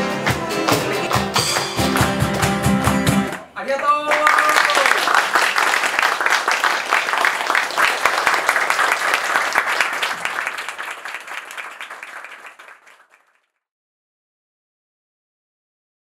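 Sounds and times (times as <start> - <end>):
audience applauding: 2.9 - 13.5.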